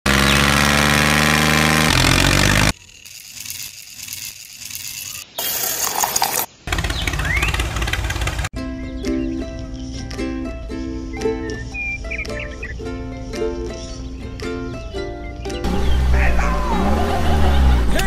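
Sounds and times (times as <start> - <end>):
small motor engine drone: 0.1 - 5.2, 15.6 - 18.0
low engine rumble: 6.6 - 8.5, 15.5 - 18.0.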